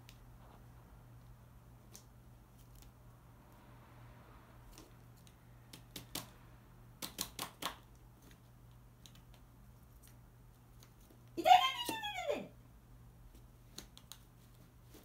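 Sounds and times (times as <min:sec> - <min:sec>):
person yelping: 0:11.4 - 0:12.5.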